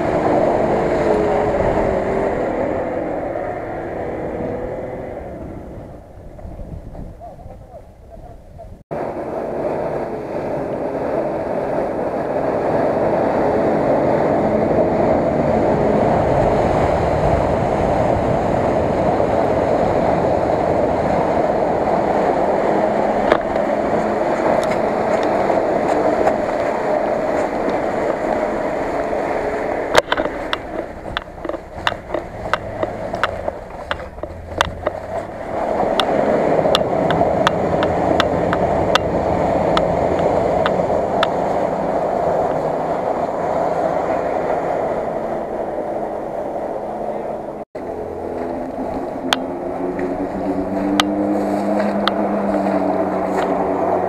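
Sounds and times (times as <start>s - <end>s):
dense rushing noise: 0.0s - 54.0s
vehicle engine running under load: 0.0s - 54.0s
sharp knocks and clicks: 29.9s - 39.1s.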